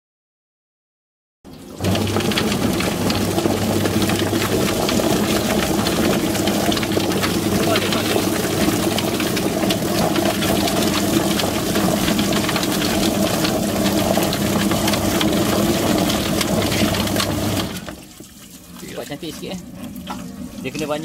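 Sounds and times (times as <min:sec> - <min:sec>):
birds clattering in drum: 0:01.5 - 0:21.0
water spraying from hose: 0:01.5 - 0:21.0
machine motor humming: 0:01.7 - 0:18.0.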